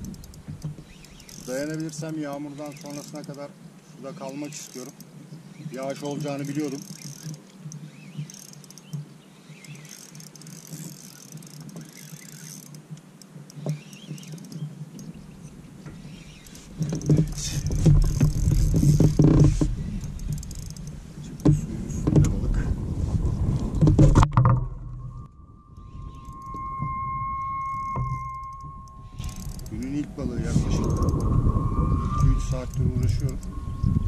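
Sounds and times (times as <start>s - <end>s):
fishing reel clicking: 0.0s - 3.5s, 4.2s - 5.1s, 5.8s - 8.9s, 9.6s - 15.1s, 16.3s - 19.4s, 20.0s - 21.0s, 28.4s - 30.1s, 30.8s - 31.4s, 32.4s - 33.6s
low rumbling and knocking: 21.3s - 34.0s.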